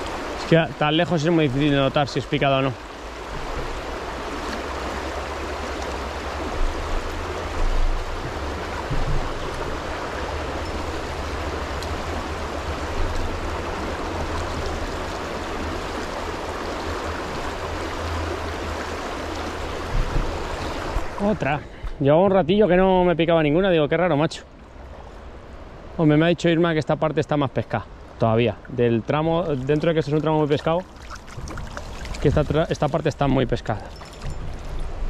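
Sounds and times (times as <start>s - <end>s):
river rushing over stones: 0.0s - 35.0s
low thumps: 7.6s - 9.9s.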